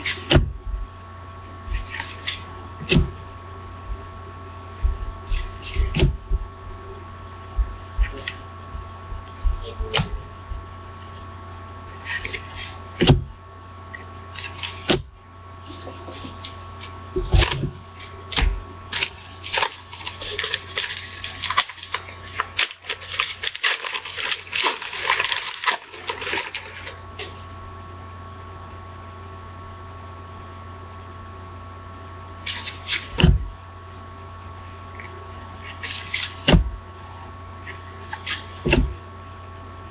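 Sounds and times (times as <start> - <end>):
steady low hum: 0.0 - 39.9
foil wrapper crinkling and tearing: 18.9 - 27.4.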